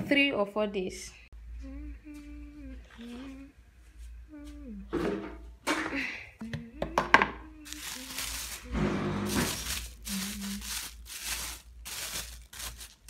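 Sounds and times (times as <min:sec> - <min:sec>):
plastic bag rustling: 0:07.6 - 0:13.0.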